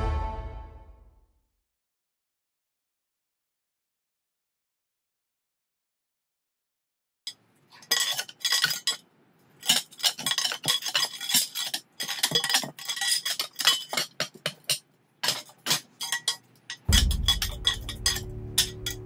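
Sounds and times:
metal tool scraping iron barrel: 7.8s - 9.0s, 9.6s - 19.0s.

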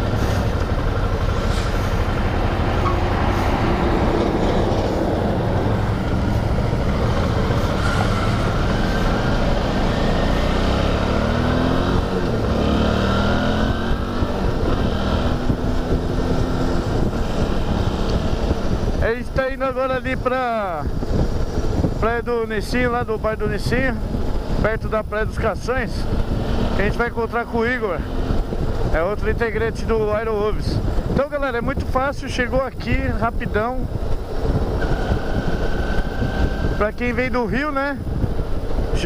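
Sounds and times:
motorcycle engine accelerating: 0.0s - 19.0s, 25.7s - 29.1s, 33.9s - 37.4s
steady rush of noise: 0.0s - 39.0s.

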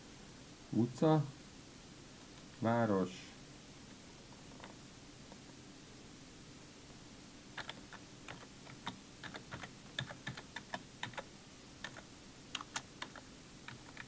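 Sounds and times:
keyboard typing clicks: 7.6s - 14.0s.

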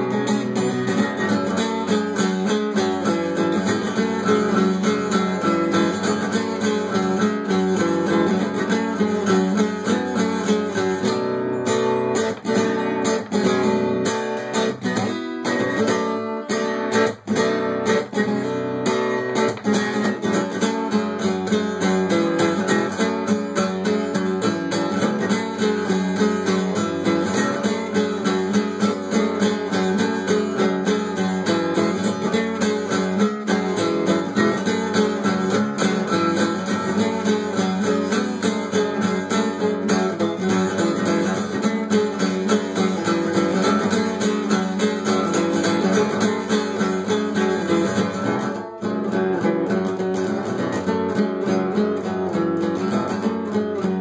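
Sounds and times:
acoustic guitar strumming chords: 0.0s - 54.0s.

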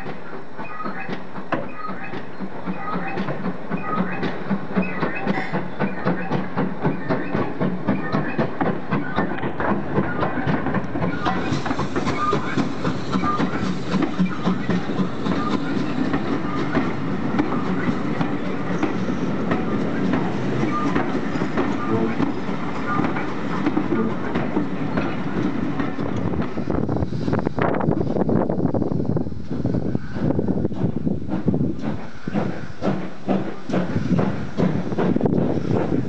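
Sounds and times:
sharp rhythmic chuffing beats: 0.0s - 26.8s
steam locomotive passing: 0.0s - 36.0s.

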